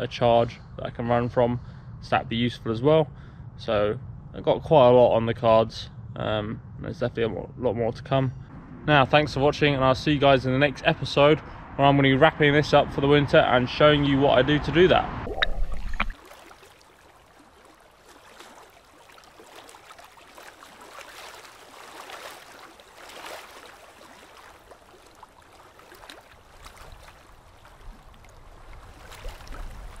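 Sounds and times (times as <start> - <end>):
low rumble: 0.0 - 16.2
small waves sloshing and splashing: 15.3 - 30.0.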